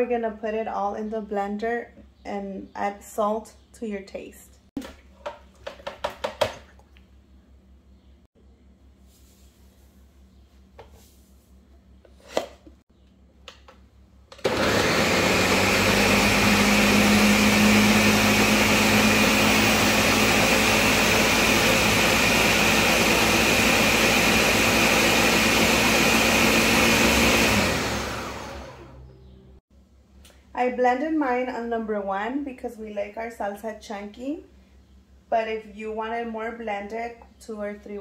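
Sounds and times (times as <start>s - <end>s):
blender motor running: 14.4s - 29.0s.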